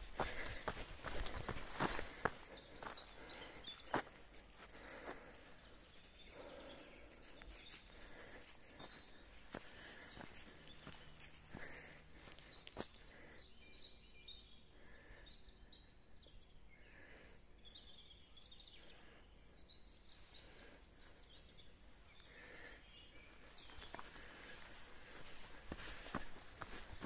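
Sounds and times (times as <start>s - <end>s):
footsteps on dirt path: 0.0s - 5.6s, 6.3s - 13.4s, 23.4s - 27.0s
songbirds chirping and trilling: 0.0s - 27.0s.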